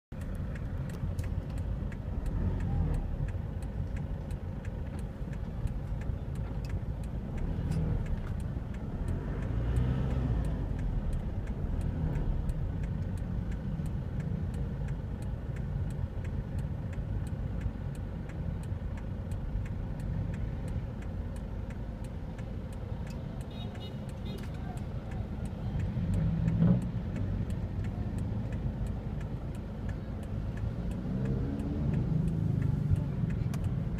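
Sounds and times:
car engine: 0:00.0 - 0:33.9
faint regular ticking: 0:00.1 - 0:33.9.

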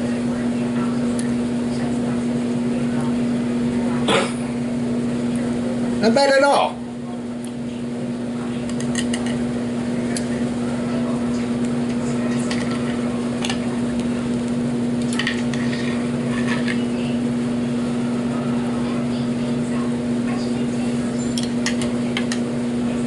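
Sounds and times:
electrical appliance hum: 0:00.0 - 0:23.0
knife and fork scraping on plate: 0:15.1 - 0:16.8.

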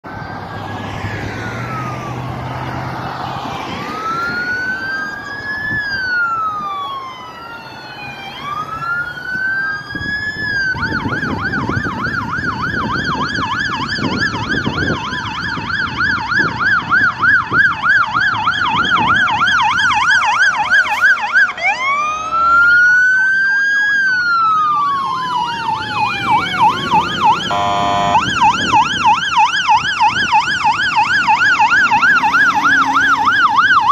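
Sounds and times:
fire truck sirens wailing: 0:00.0 - 0:33.9
passing traffic: 0:00.0 - 0:33.9
truck horn blast: 0:22.1 - 0:22.8, 0:27.4 - 0:28.3.

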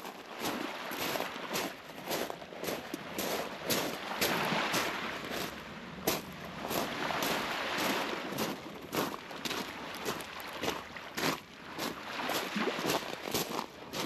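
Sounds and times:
footsteps walking: 0:00.5 - 0:05.5.

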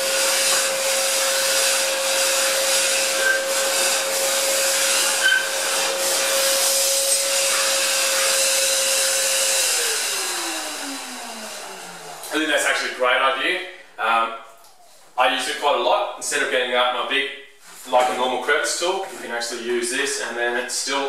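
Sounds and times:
vacuum motor winding down: 0:00.0 - 0:12.8
dust extractor whining: 0:00.0 - 0:13.2.

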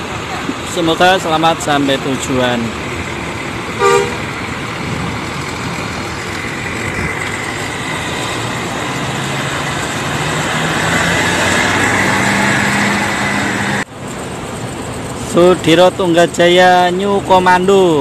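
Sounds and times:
coach diesel engine pulling away: 0:00.0 - 0:18.0
steady engine hum: 0:00.0 - 0:18.0
motorbike passing: 0:01.4 - 0:13.9.

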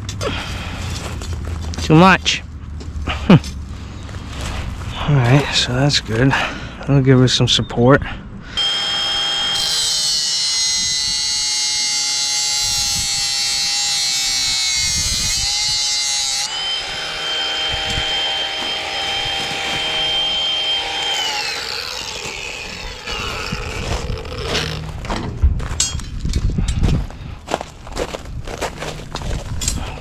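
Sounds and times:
angle grinder cutting metal: 0:08.6 - 0:25.0.

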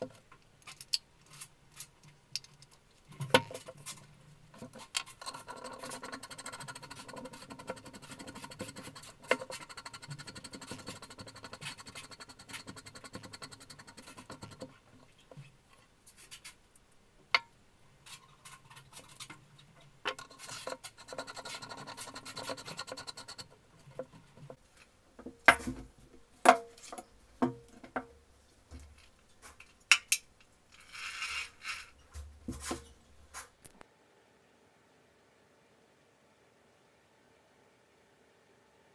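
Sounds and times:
metal scraping and clicking: 0:00.6 - 0:15.4.

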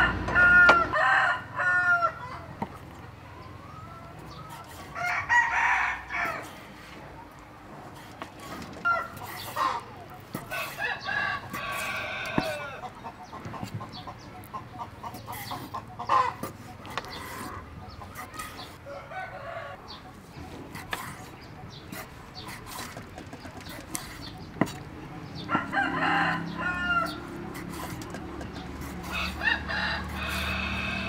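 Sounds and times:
rooster crowing: 0:00.0 - 0:02.3, 0:04.9 - 0:06.5, 0:10.5 - 0:12.8, 0:25.4 - 0:27.4, 0:29.1 - 0:31.0
chickens clucking: 0:00.0 - 0:31.0.

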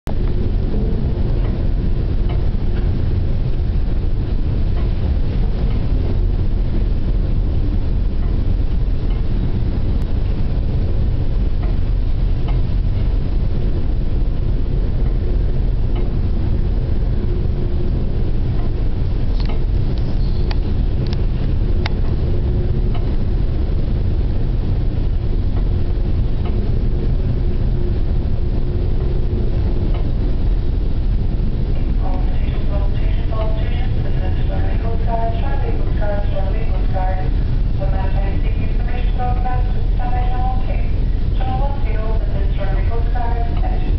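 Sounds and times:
low drone of boat engine: 0:00.1 - 0:43.9.

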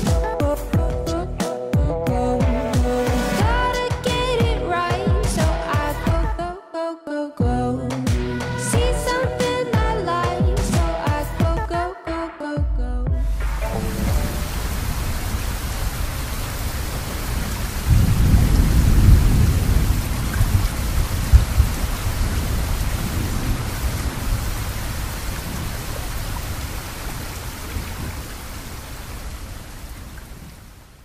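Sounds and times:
thunder rumbling: 0:13.4 - 0:30.8
steady rain: 0:13.4 - 0:31.0.

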